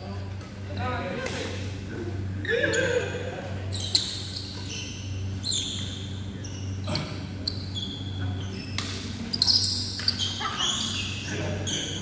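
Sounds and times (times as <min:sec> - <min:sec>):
steady low hum: 0:00.0 - 0:12.0
shoes squeaking on court: 0:02.4 - 0:12.0.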